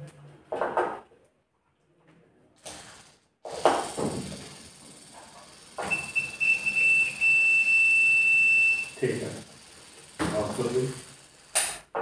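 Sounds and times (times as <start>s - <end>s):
multimeter continuity beep: 5.8s - 9.0s.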